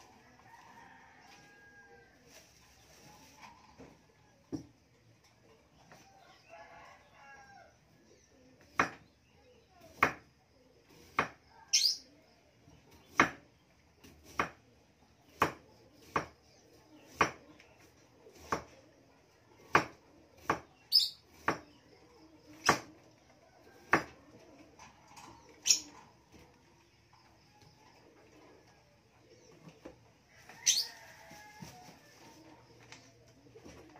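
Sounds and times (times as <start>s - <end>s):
bird chirping: 20.7s - 21.5s.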